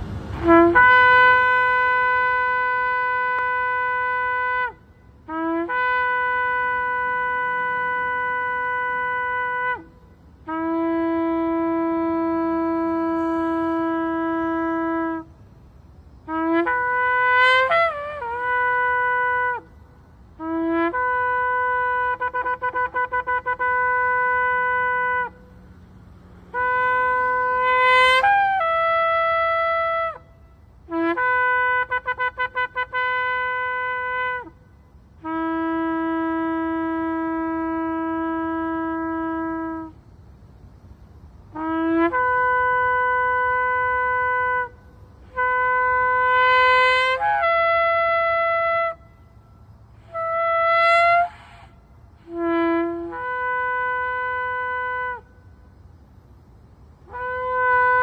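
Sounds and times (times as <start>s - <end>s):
shofar blasts: 0.1s - 15.4s, 16.1s - 19.8s, 20.4s - 25.6s, 26.3s - 40.0s, 41.5s - 55.7s, 57.0s - 58.0s
breaths: 51.3s - 52.0s.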